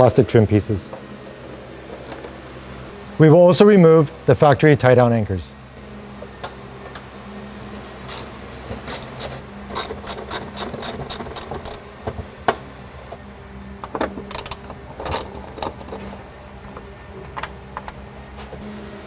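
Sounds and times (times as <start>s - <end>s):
socket ratchet clicking: 9.8s - 11.8s.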